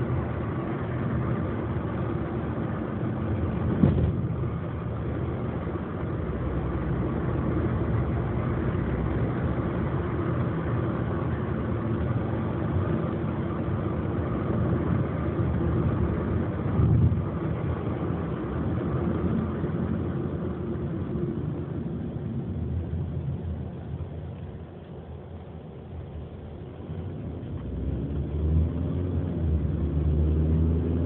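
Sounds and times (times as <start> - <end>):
car engine and road noise: 0.0 - 31.0
low rumble: 3.3 - 10.0, 15.3 - 30.0.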